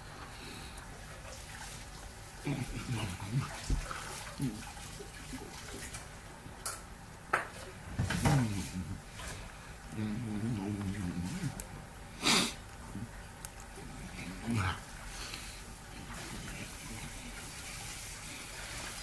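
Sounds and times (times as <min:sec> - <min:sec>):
murmured voice sounds: 0:02.4 - 0:03.6, 0:09.9 - 0:11.6, 0:14.1 - 0:14.8
man chewing: 0:08.2 - 0:17.4.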